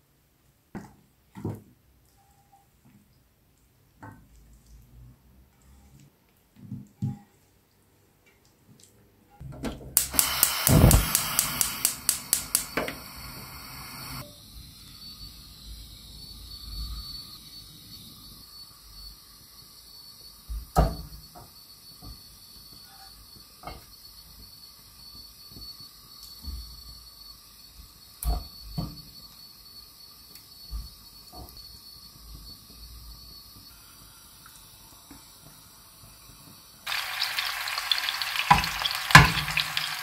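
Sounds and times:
onions sizzling in hot oil: 0:10.0 - 0:15.7, 0:34.0 - 0:40.0.

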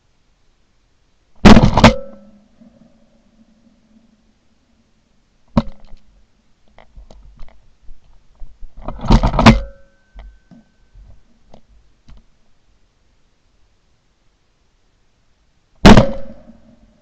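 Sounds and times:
loud gunshot: 0:01.4 - 0:02.3, 0:15.8 - 0:16.8.

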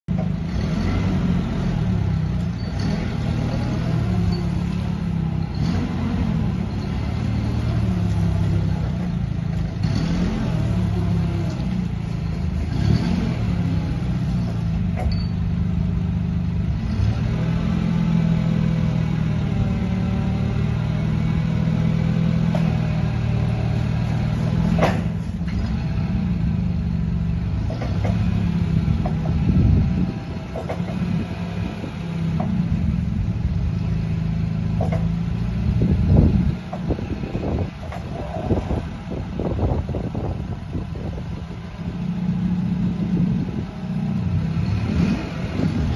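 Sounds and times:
forklift engine running: 0:00.1 - 0:45.9.

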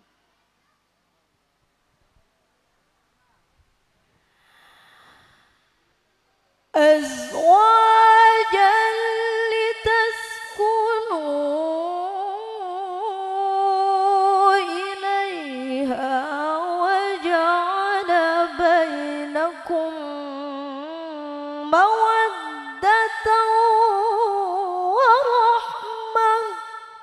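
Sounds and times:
woman reciting melodically: 0:06.8 - 0:27.0.

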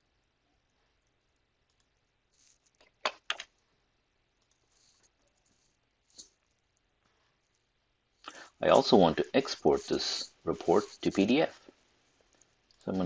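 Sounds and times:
computer mouse clicks: 0:02.6 - 0:03.6.

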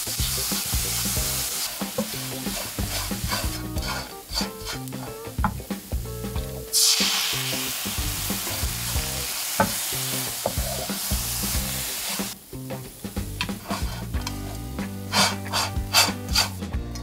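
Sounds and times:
food sizzling in a frying pan: 0:00.0 - 0:16.6
wooden spatula scraping pan: 0:01.5 - 0:05.2, 0:13.4 - 0:16.6.

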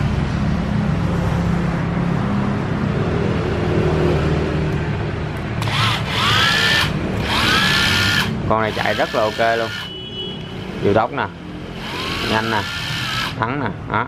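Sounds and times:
impact driver motor whining: 0:05.6 - 0:09.9, 0:11.8 - 0:13.4.

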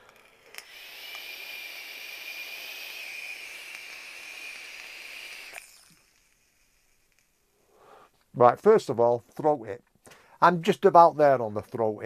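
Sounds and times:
vape draw air hiss: 0:00.0 - 0:08.2.

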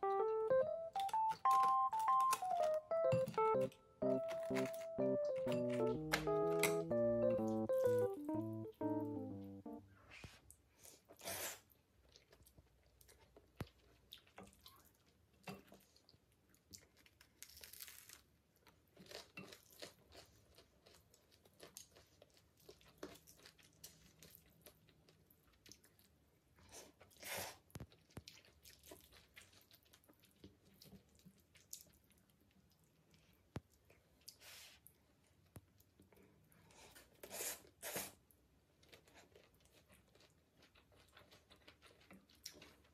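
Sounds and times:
noodles slurped and chewed: 0:19.0 - 0:34.8, 0:38.8 - 0:42.9.

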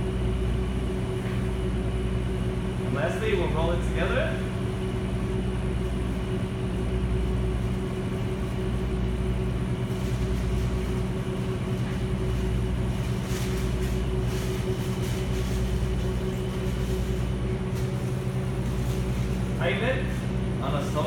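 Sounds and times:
electrical hum of kitchen equipment: 0:00.0 - 0:21.0
paper rustling: 0:09.8 - 0:20.3.

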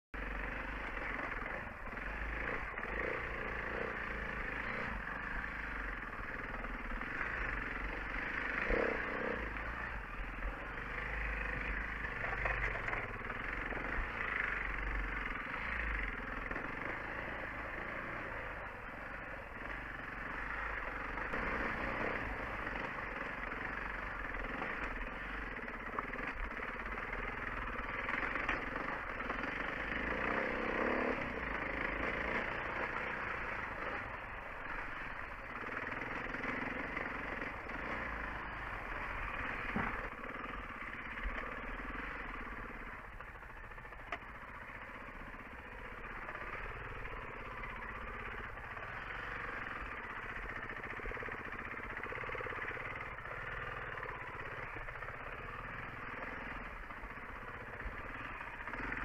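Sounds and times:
dirt bike engine running: 0:00.2 - 0:59.0.

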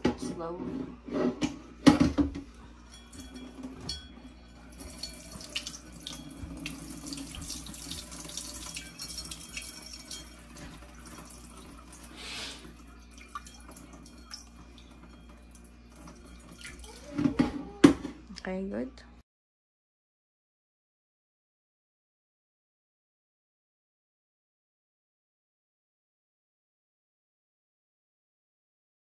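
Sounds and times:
water trickling into a steel sink: 0:04.6 - 0:17.4.

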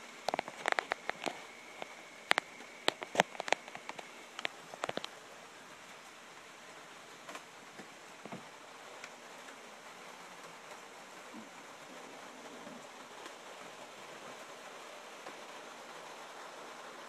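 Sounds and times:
bear chewing seeds crunching: 0:00.3 - 0:05.2.

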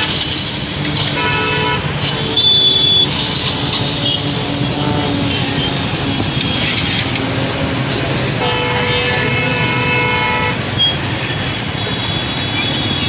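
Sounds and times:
road traffic noise: 0:00.0 - 0:13.0
vehicle horn: 0:01.0 - 0:03.5, 0:04.6 - 0:05.5, 0:08.3 - 0:10.6.

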